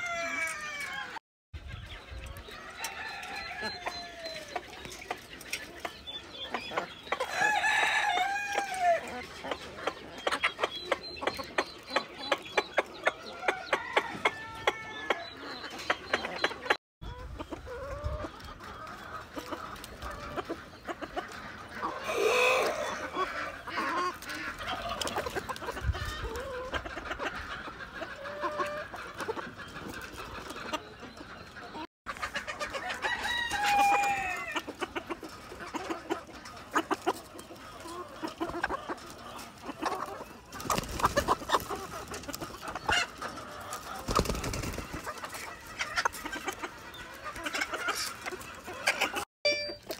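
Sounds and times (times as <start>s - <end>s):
chickens clucking: 0.0s - 49.9s
loud chicken call: 21.8s - 23.9s, 32.8s - 34.6s.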